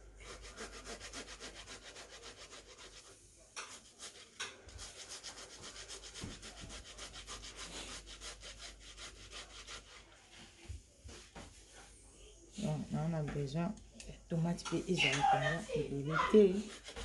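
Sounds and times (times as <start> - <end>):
tomato scraping on metal grater: 16.1 - 17.0.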